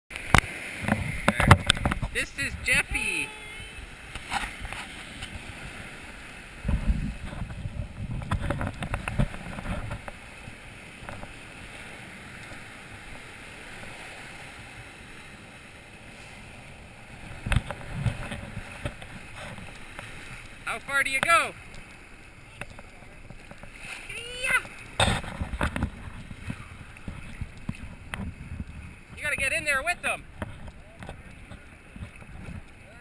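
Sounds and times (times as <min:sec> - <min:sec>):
waves breaking on shore: 0:00.1 - 0:33.0
microphone rumbling and knocking: 0:00.8 - 0:02.9, 0:06.6 - 0:10.2, 0:25.0 - 0:32.7.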